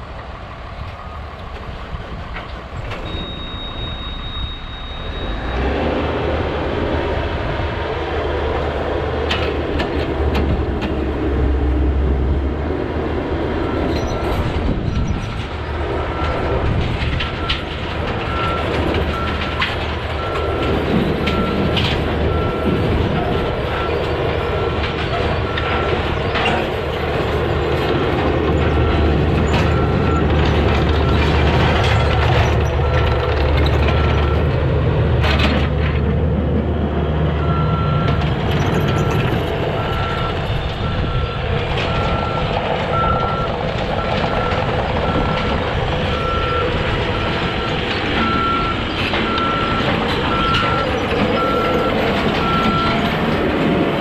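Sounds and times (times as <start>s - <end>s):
diesel engine idling and revving: 0.0s - 54.0s
steel tracks clanking: 0.0s - 54.0s
high steady beep: 3.0s - 5.6s
travel alarm beeping: 3.0s - 5.6s, 39.8s - 53.1s.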